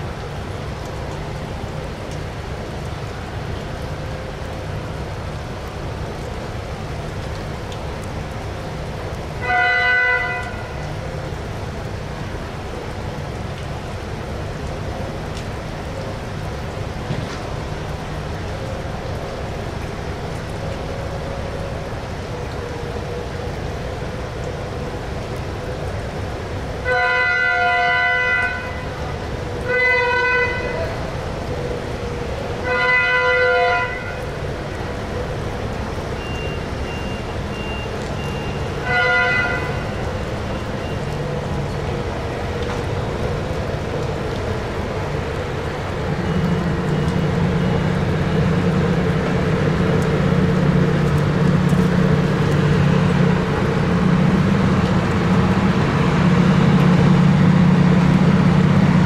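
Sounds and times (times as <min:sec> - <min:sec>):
train horn blasts: 0:09.4 - 0:10.9, 0:26.8 - 0:29.0, 0:29.6 - 0:31.0, 0:32.6 - 0:34.3, 0:38.8 - 0:40.1
steady low rumble: 0:40.1 - 0:59.0.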